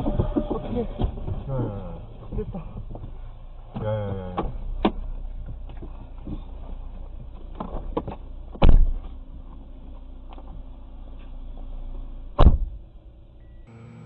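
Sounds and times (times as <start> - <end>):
low steady car hum: 0.0 - 14.0
car door slamming shut: 8.6 - 9.0, 12.4 - 12.8.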